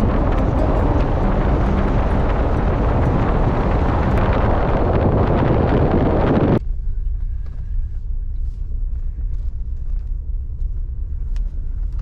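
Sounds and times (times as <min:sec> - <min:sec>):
strong wind on microphone: 0:00.0 - 0:06.6
steady low rumble: 0:00.0 - 0:12.0.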